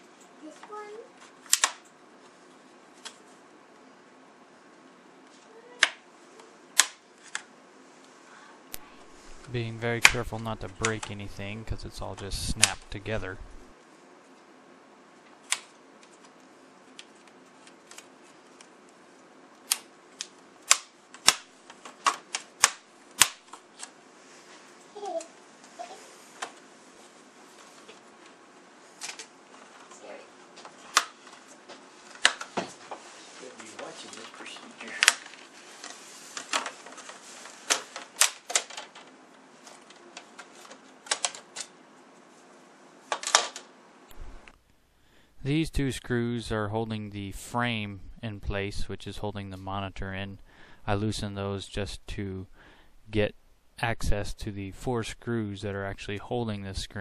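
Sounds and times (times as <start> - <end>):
plastic clips snapping: 1.5 - 1.9.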